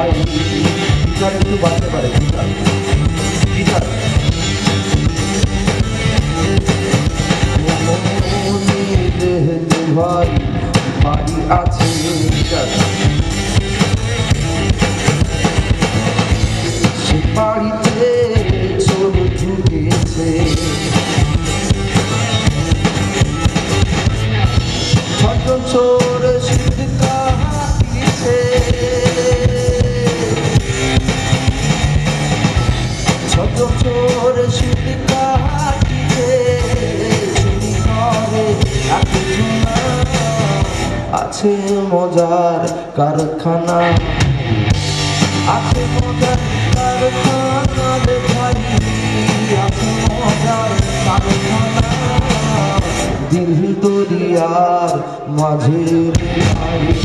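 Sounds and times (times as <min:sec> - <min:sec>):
person singing: 0:00.0 - 0:04.4, 0:06.0 - 0:13.1, 0:16.6 - 0:22.6, 0:24.9 - 0:31.3, 0:33.2 - 0:44.3, 0:45.2 - 0:57.0
live rock band playing: 0:00.0 - 0:57.0.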